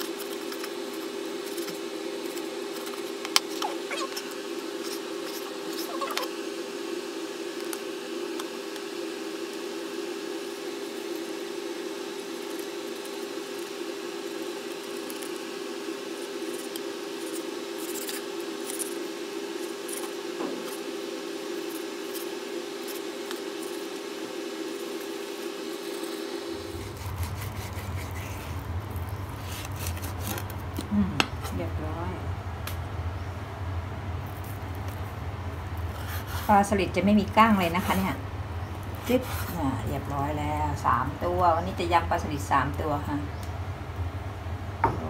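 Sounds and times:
steady hum: 0:00.0 - 0:45.0
deeper hum: 0:15.6 - 0:45.0.

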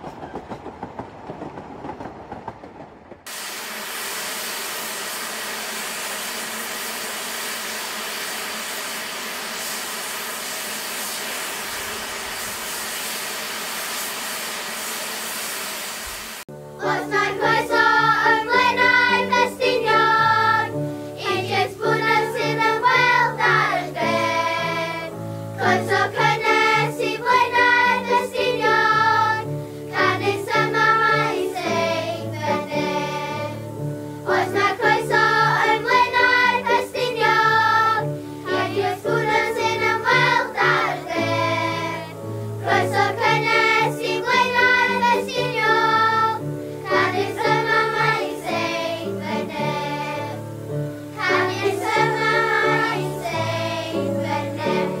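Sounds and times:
children's choir singing: 0:16.8 - 0:55.0.

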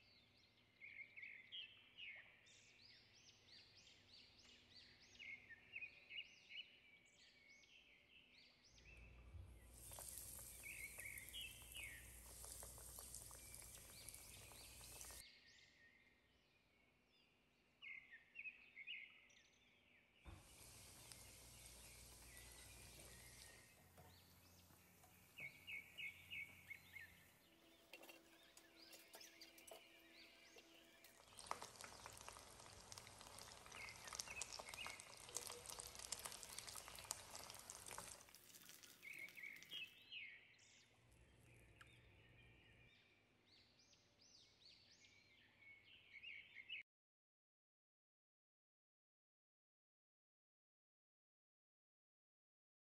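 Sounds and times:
faint bird chirps: 0:00.0 - 0:16.7, 0:20.3 - 0:38.2
oil sizzling and popping: 0:08.8 - 0:15.2, 0:20.3 - 0:40.0.

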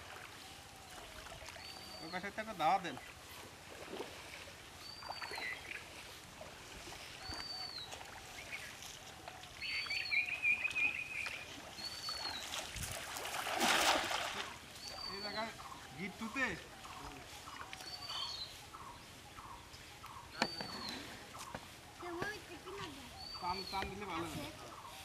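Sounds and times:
water sloshing from wading: 0:00.0 - 0:23.2
cast net splashing on water: 0:10.8 - 0:14.7.

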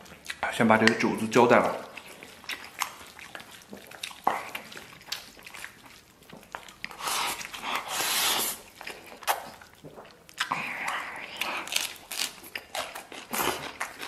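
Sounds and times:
wet chewing: 0:00.0 - 0:14.0
person slurping noodles: 0:06.9 - 0:08.7.

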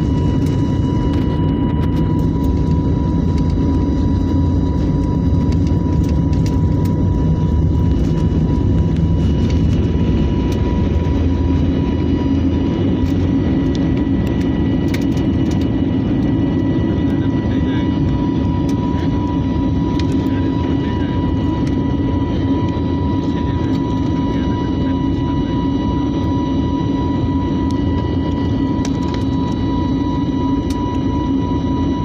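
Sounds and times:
jet engines roaring with whine: 0:00.0 - 0:32.0
wheels rumbling on runway: 0:01.6 - 0:16.2.

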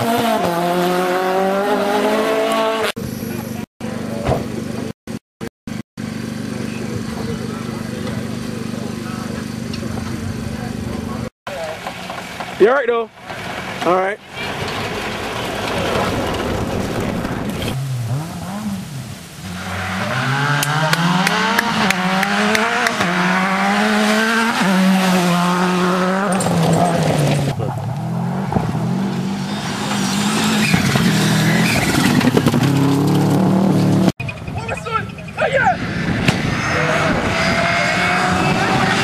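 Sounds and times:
rally car engines revving: 0:00.0 - 0:04.9, 0:06.0 - 0:39.0
tyres rushing on gravel: 0:11.5 - 0:20.4, 0:29.3 - 0:35.7.

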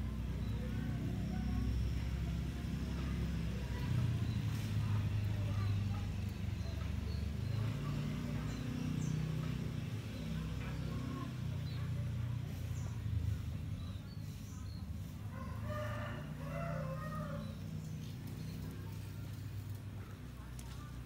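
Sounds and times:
rooster crowing: 0:15.3 - 0:17.6.

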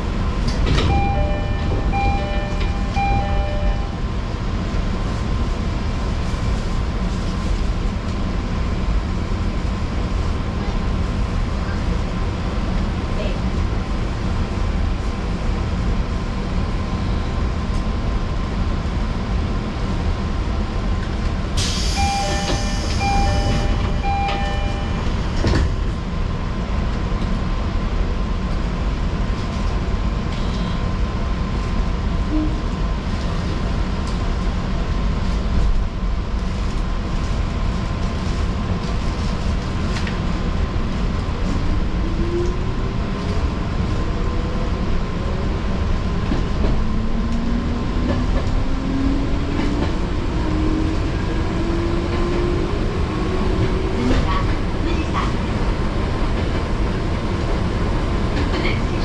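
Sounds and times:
train wheels rumbling: 0:31.4 - 0:59.0.

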